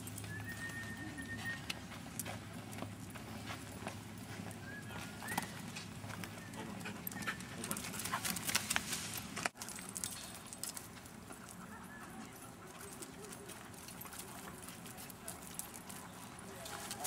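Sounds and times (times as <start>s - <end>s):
scuffs and clicks: 0.0s - 11.5s
dog panting: 6.3s - 8.6s.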